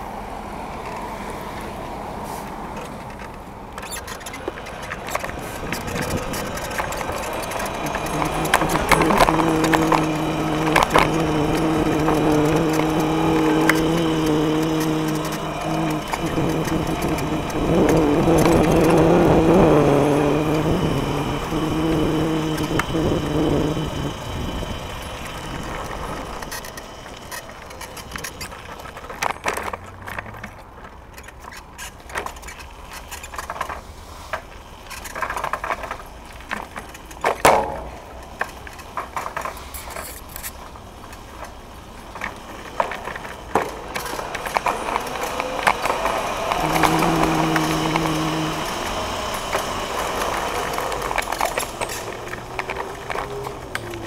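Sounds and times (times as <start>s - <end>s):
scooter rumbling and rattling: 0.0s - 54.0s
wheels knocking on bumps: 2.5s - 54.0s
low droning tone: 4.4s - 28.8s, 37.5s - 38.5s, 43.8s - 54.0s.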